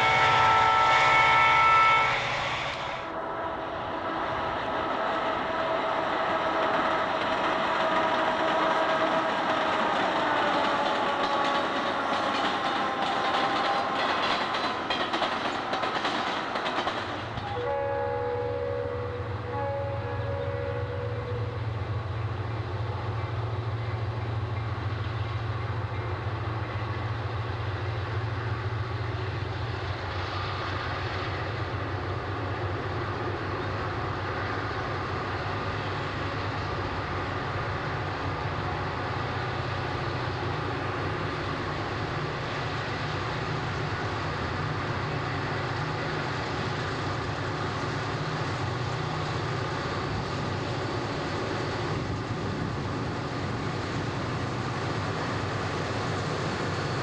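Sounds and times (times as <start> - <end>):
train horn: 0.0 - 14.9, 17.4 - 22.0
locomotive rumble: 0.0 - 57.0
freight cars rolling by: 3.0 - 17.6.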